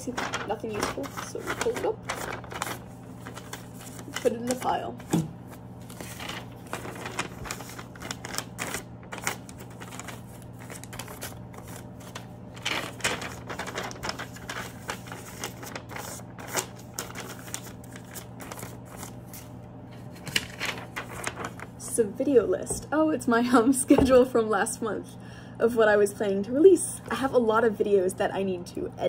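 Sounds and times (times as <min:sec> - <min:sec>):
paper rustling and flapping: 0:00.0 - 0:21.9
steady low hum: 0:00.0 - 0:29.0.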